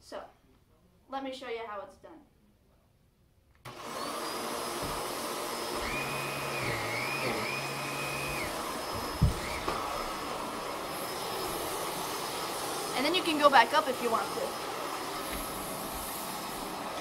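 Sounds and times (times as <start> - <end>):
vacuum cleaner running: 3.7 - 17.0.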